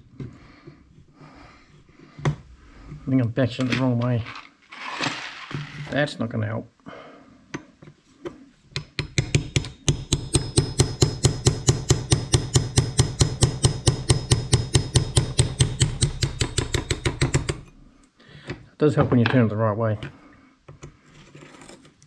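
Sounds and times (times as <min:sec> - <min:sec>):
hammer tapping metal punch: 0:08.7 - 0:17.7.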